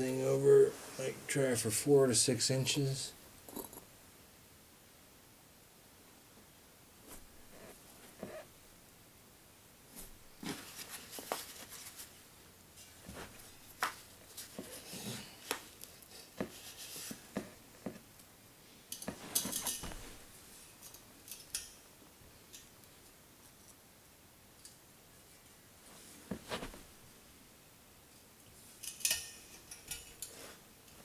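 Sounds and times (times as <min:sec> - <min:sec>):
handling clicks and scrapes: 0:18.9 - 0:20.2.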